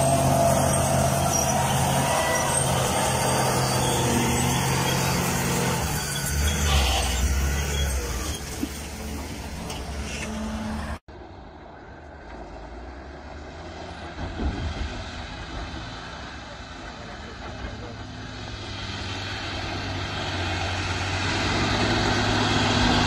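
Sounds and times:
truck diesel engine running: 0.0s - 11.0s
distant truck engine: 0.0s - 23.0s.

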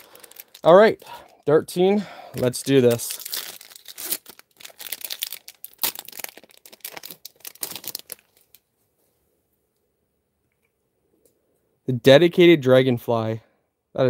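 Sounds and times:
foil pack tearing and crinkling: 0.0s - 0.7s, 2.9s - 8.6s.

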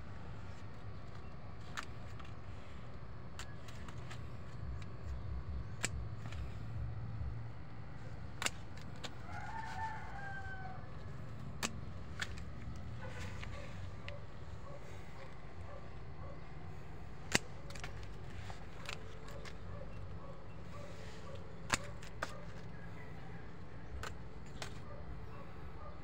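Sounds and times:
pruning shears snipping: 0.3s - 6.8s, 8.0s - 25.5s
rooster crowing: 9.2s - 11.1s.

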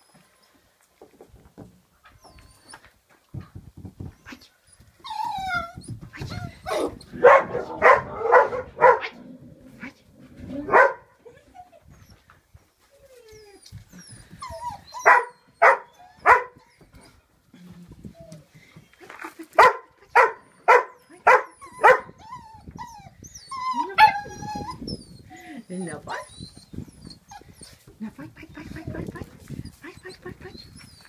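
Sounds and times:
puppy whining: 4.2s - 7.2s, 12.9s - 17.2s, 21.5s - 27.9s, 29.6s - 31.0s.

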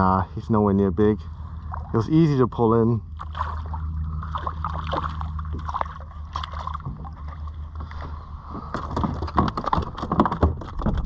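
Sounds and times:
fish splashing at water surface: 3.2s - 7.6s
sharp knocks and rattles: 8.5s - 11.0s.

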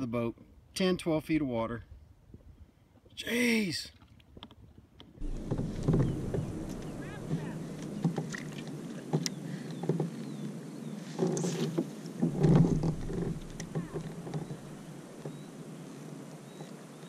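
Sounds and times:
bumps and rustling: 5.2s - 10.2s, 11.0s - 15.5s
fishing gear clicks and knocks: 11.2s - 14.8s.

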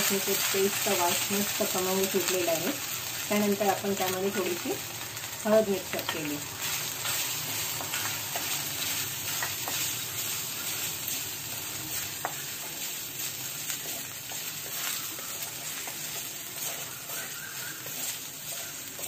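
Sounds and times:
spices sizzling in hot oil: 0.0s - 19.0s
wooden spatula scraping pan: 11.9s - 19.0s.

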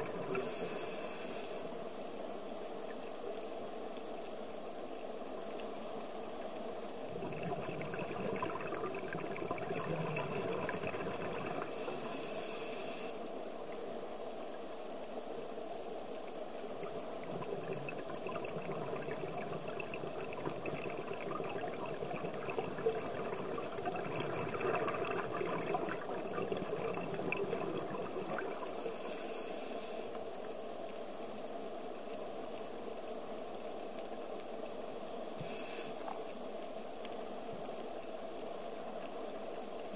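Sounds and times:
underwater hiss: 0.0s - 1.9s, 7.0s - 13.5s, 16.8s - 30.4s, 35.4s - 36.3s
hissing inhalations: 0.3s - 1.7s, 10.9s - 13.2s, 28.6s - 30.2s, 35.4s - 36.1s
bubbling exhalations: 7.1s - 12.1s, 16.9s - 29.1s.

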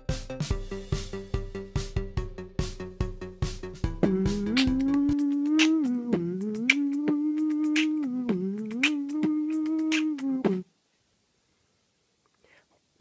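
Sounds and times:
person humming a tune: 3.8s - 10.7s
clicking beatbox beat: 4.0s - 10.7s.

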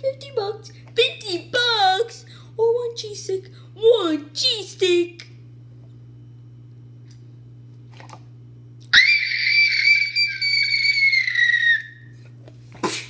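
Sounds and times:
low steady hum: 0.0s - 13.0s
shrill high-pitched whistling tone: 9.0s - 12.1s.

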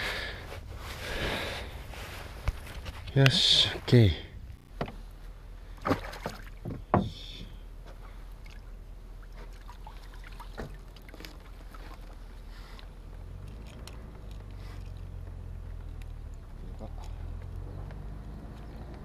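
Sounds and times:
handling knocks and rustles: 0.5s - 4.0s.

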